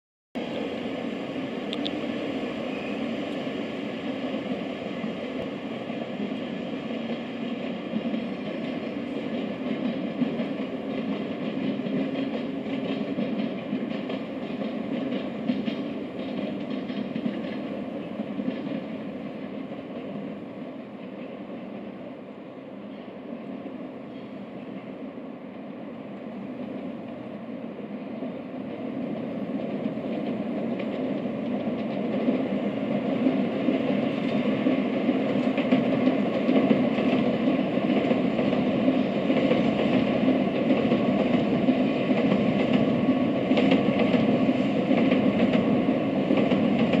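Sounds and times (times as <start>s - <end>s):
train rumbling on tracks: 0.4s - 47.0s
faint clicking: 1.7s - 2.0s.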